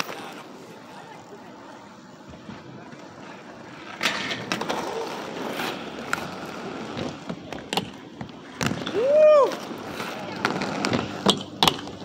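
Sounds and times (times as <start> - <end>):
inline skate wheels rolling on concrete: 0.0 - 12.0
skates clacking on ledge: 6.9 - 12.0.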